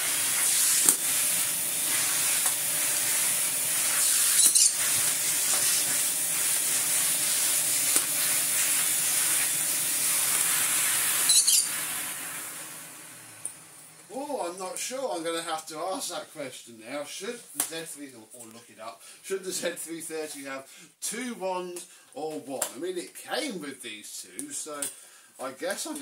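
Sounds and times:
vacuum cleaner running: 0:00.0 - 0:14.4.

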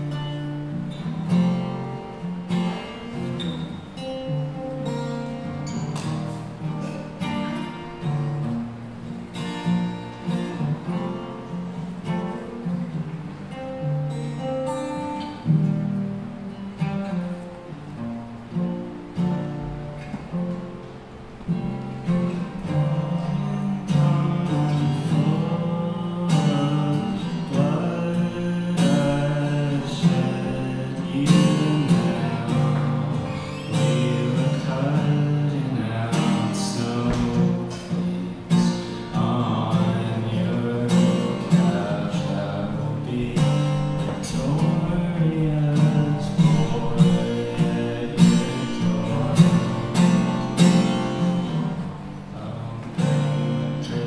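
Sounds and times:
acoustic guitar strumming: 0:00.0 - 0:54.0
man singing: 0:22.0 - 0:54.0.

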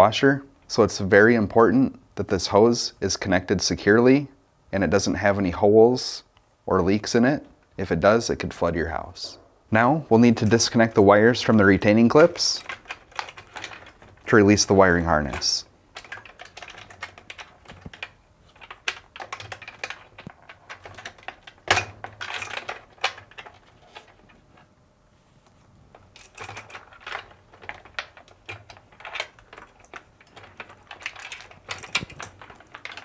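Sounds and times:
wire rustling against plastic: 0:08.6 - 0:33.0
wires snapping out of plastic clips: 0:26.0 - 0:33.0.

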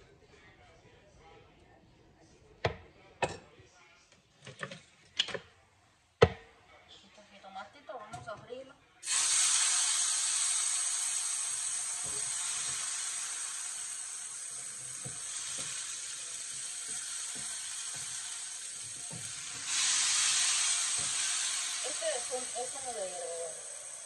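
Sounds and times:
vegetables sizzling in hot oil: 0:09.0 - 0:24.0.

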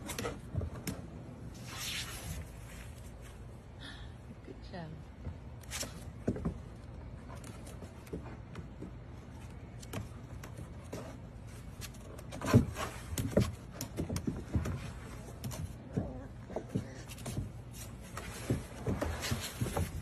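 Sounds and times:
puppy claws on plastic steps: 0:05.2 - 0:20.0.

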